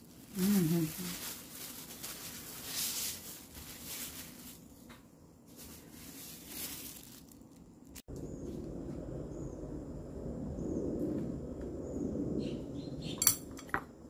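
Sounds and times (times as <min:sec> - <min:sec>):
plastic gloves crinkling: 0:00.0 - 0:08.1.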